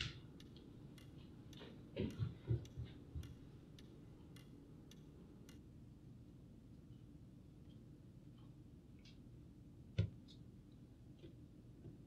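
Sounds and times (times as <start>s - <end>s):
clock ticking: 0.3s - 5.7s.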